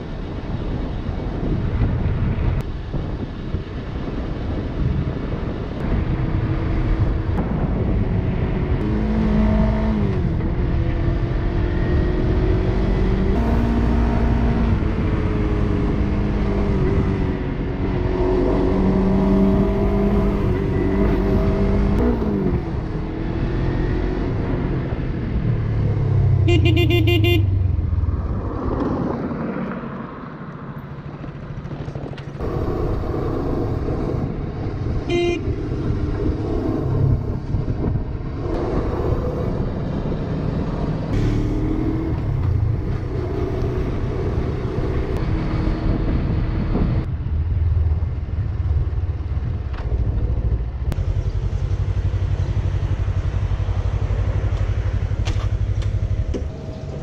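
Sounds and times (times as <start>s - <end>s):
wind noise on microphone: 0.0s - 26.9s, 30.8s - 51.4s
horn tooting: 13.4s - 14.7s, 26.4s - 27.6s, 35.0s - 35.6s
motorcycle engine running: 47.0s - 57.0s.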